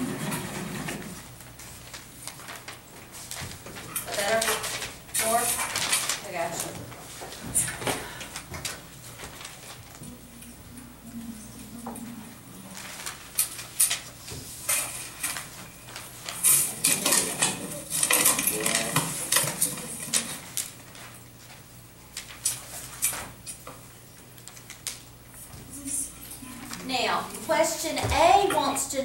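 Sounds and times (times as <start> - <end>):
faint voices murmuring: 10.0 - 13.0.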